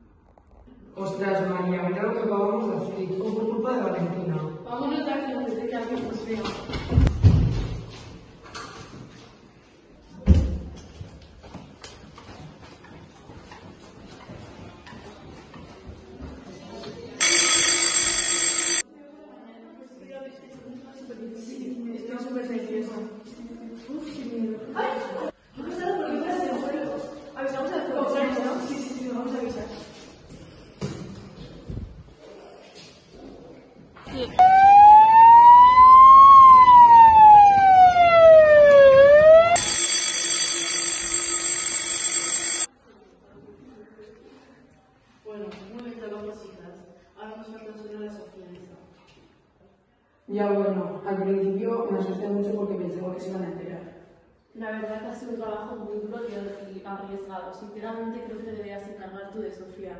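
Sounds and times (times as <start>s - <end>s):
electric school bell ringing: 17.2s - 18.8s, 39.6s - 42.7s
police siren wailing: 34.4s - 39.8s.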